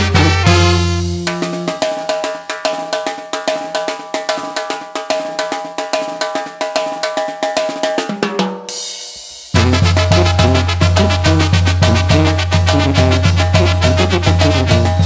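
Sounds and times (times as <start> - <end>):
full band with heavy bass: 0.0 - 2.1, 9.2 - 15.0
fast steady drumming: 0.0 - 15.0.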